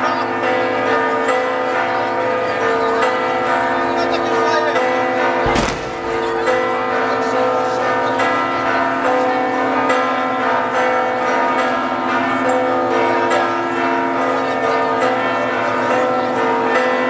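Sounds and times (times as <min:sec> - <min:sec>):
church bells pealing: 0:00.0 - 0:17.0.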